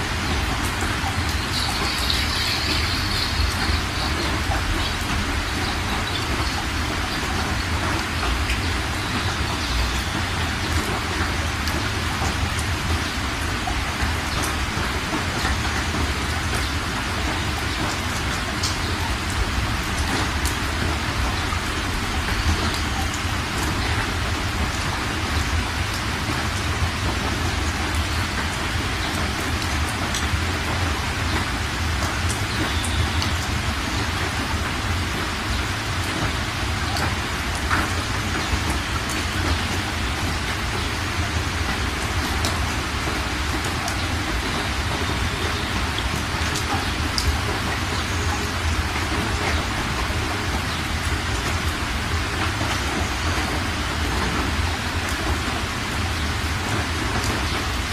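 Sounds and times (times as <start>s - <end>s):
floodwater rushing over rocks: 0.0s - 57.9s.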